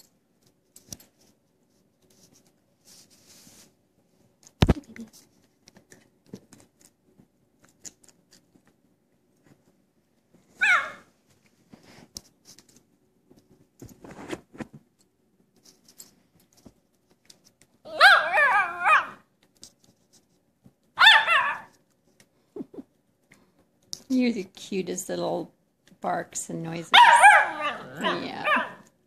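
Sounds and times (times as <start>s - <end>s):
puppy yipping: 10.6s - 11.1s, 17.9s - 19.2s, 21.0s - 21.7s, 27.0s - 28.8s
rough puppy vocal sound: 27.0s - 28.8s.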